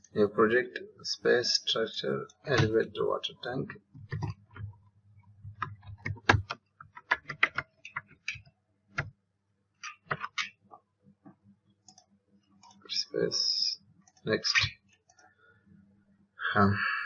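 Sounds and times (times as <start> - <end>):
keyboard key clicks: 5.5 - 8.4.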